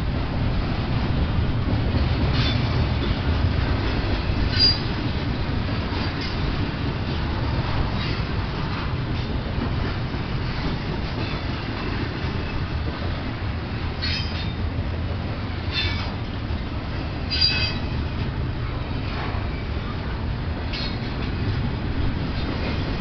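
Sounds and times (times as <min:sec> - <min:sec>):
train wheels rumbling on rail: 0:00.0 - 0:23.0
high wheel squeals: 0:04.5 - 0:04.9, 0:17.2 - 0:18.0.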